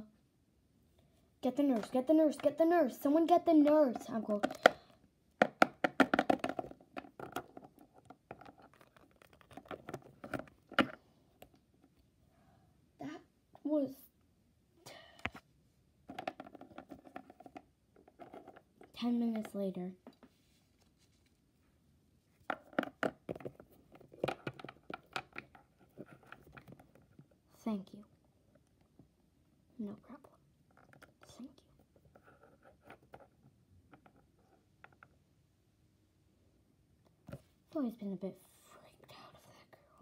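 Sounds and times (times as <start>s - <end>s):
plastic figurines tapping on wood: 3.6s - 4.8s, 5.4s - 8.6s, 16.1s - 17.6s
plastic toys tapping on hard floor: 3.7s - 4.8s, 5.4s - 11.0s, 16.1s - 18.6s, 22.5s - 25.6s.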